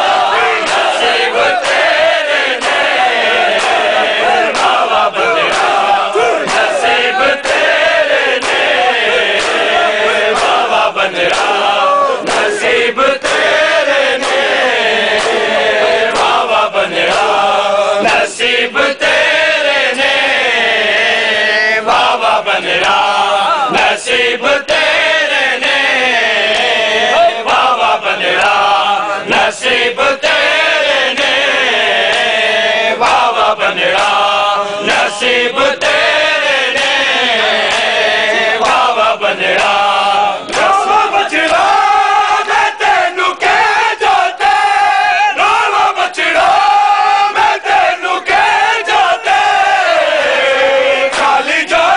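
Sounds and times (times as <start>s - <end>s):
hands slapping chests: 0.0s - 17.4s, 21.9s - 23.1s, 26.5s - 26.8s, 32.0s - 32.4s, 33.0s - 35.2s, 35.8s - 42.6s, 51.1s - 51.4s
crowd of men chanting: 0.0s - 51.9s.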